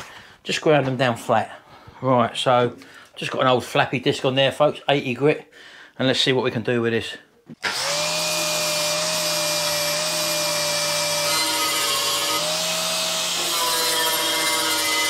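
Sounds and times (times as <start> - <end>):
angle grinder grinding metal: 7.6 - 15.0.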